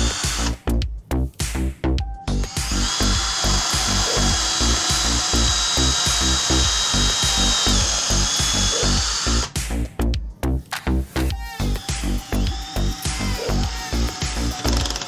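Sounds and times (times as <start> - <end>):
cordless drill whining: 0.0 - 0.5, 2.5 - 9.5, 11.4 - 15.0
background music with steady beat: 0.0 - 15.0.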